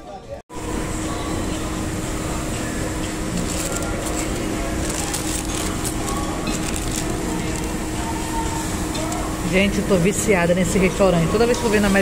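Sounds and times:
paper wrapper crinkling: 0:03.3 - 0:09.3.

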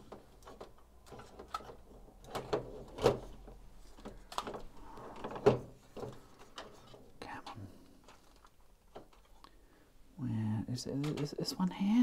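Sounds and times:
plastic toy parts clicking: 0:00.1 - 0:03.2, 0:04.0 - 0:04.7, 0:06.0 - 0:09.5.

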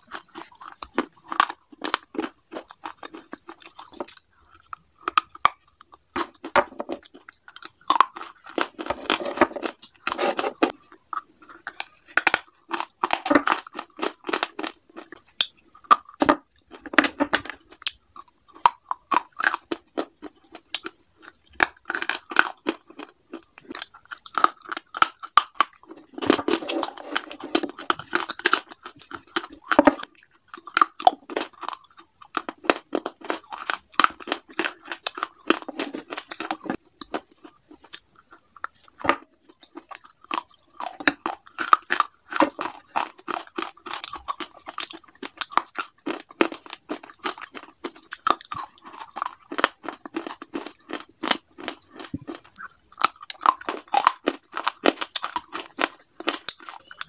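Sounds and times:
gritty crunching chewing: 0:00.0 - 0:57.0.

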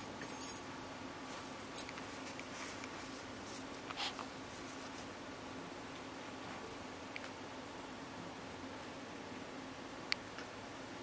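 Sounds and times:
rustling on a knit blanket: 0:01.2 - 0:05.2.

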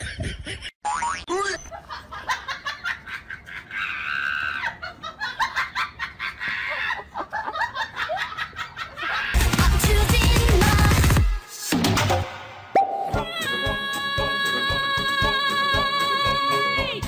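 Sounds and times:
high-pitched cackling laughter: 0:00.0 - 0:09.4.

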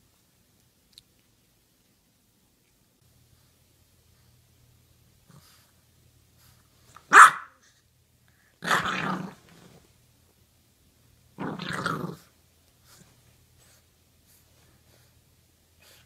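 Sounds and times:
gruff growling barks: 0:07.1 - 0:07.5, 0:08.6 - 0:09.4
puppy barking: 0:07.1 - 0:07.6.

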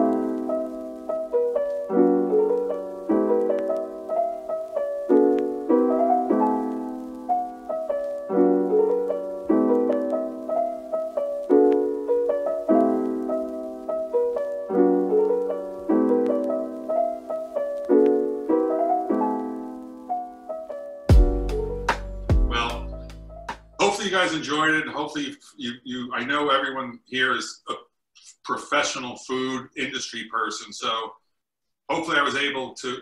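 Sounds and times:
calm piano music: 0:00.0 - 0:23.8.

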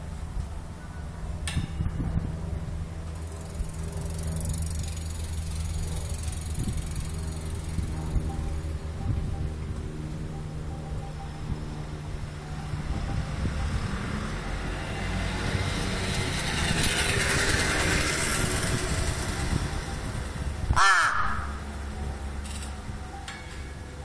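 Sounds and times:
rushing background noise: 0:00.0 - 0:24.0
crow cawing: 0:20.7 - 0:21.6.

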